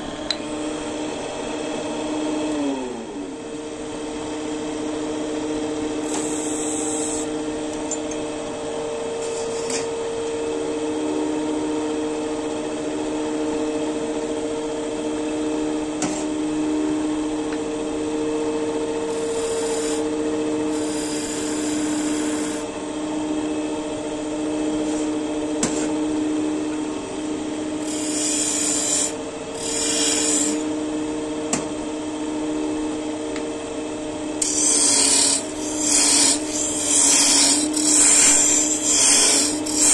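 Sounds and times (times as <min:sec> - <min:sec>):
tool scraping spinning wood: 0:06.0 - 0:07.3, 0:09.2 - 0:09.9, 0:19.1 - 0:22.7, 0:27.8 - 0:30.7, 0:34.4 - 0:39.9
lathe motor humming: 0:19.1 - 0:22.8, 0:27.0 - 0:30.7, 0:34.4 - 0:39.9.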